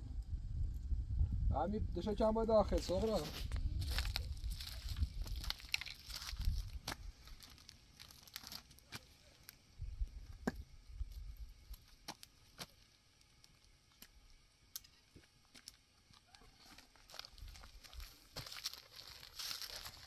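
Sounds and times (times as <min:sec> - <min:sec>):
plastic bag crinkling: 0:03.8 - 0:08.9, 0:15.6 - 0:20.0.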